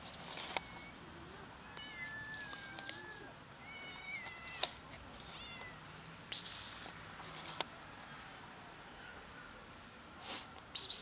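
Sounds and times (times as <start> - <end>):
person hissing psst: 6.3 - 7.0, 10.3 - 11.0.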